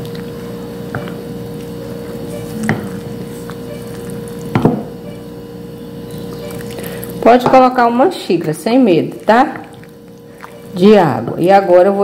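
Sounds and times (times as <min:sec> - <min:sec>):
spoon stirring wet paste: 0:05.2 - 0:11.5.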